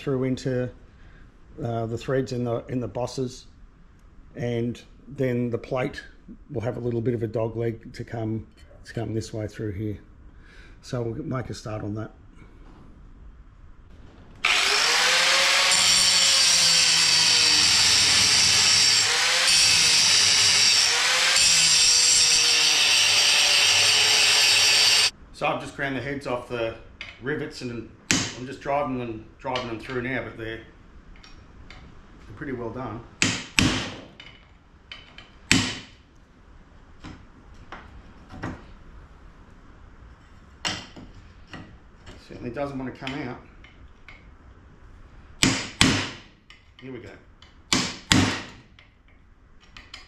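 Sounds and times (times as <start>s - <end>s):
angle grinder grinding metal: 14.4s - 25.1s.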